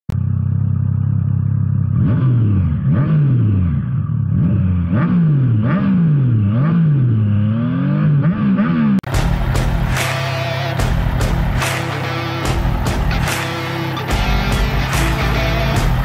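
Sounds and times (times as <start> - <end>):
motorcycle engine idling: 0.1 - 2.0, 9.1 - 16.0
motorcycle engine revving: 0.1 - 16.0.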